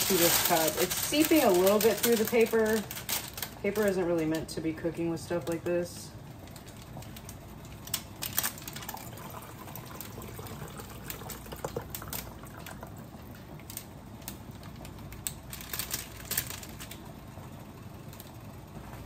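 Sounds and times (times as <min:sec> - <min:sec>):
parchment paper crackling: 0:00.0 - 0:17.2
drippings trickling into a cup: 0:08.2 - 0:15.0.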